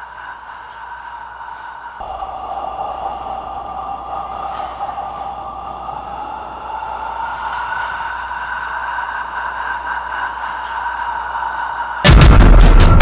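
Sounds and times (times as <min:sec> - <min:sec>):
eerie drone: 0:00.0 - 0:13.0
electronic music with heavy beats: 0:12.0 - 0:13.0.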